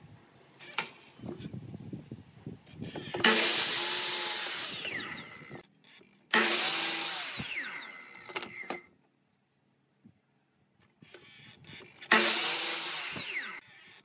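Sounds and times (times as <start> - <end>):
mitre saw motor whining: 2.7 - 8.9, 11.0 - 14.0
saw blade cutting wood: 3.0 - 5.6, 6.3 - 8.8, 11.2 - 14.0.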